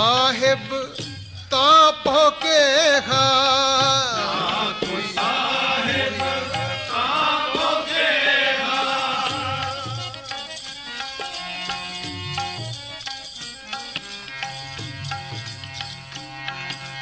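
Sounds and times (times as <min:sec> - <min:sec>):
harmonium: 0:00.0 - 0:17.0
tabla drumming: 0:00.0 - 0:17.0
person singing: 0:01.6 - 0:10.5.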